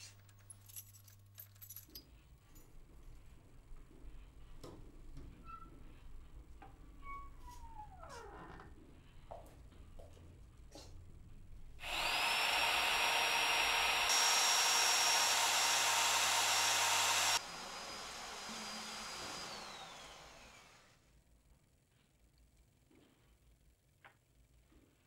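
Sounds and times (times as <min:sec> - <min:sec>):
electric blower whining: 0:11.8 - 0:21.0.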